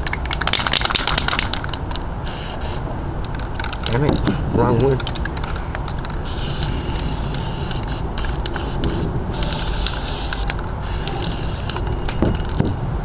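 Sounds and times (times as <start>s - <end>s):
spray can hissing: 2.2s - 2.8s, 6.2s - 11.8s.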